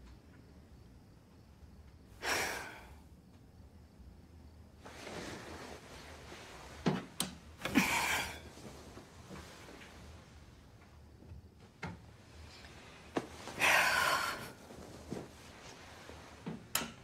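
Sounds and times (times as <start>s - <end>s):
bedding rustling: 4.7s - 17.0s.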